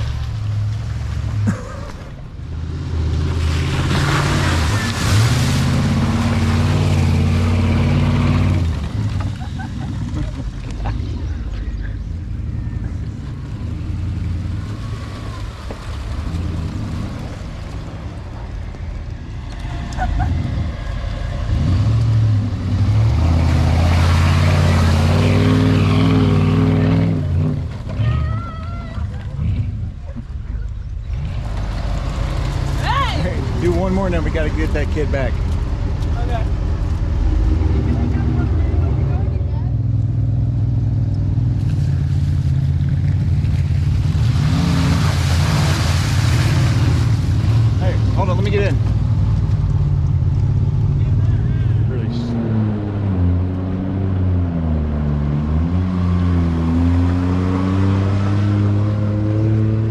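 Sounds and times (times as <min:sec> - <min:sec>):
water and mud splashing: 0:00.0 - 0:39.5, 0:41.3 - 0:59.9
engine revving hard: 0:21.4 - 0:27.7, 0:51.0 - 0:59.9.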